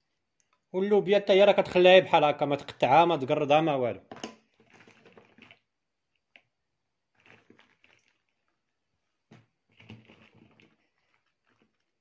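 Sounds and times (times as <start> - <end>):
green beans rustling: 7.0 - 12.0.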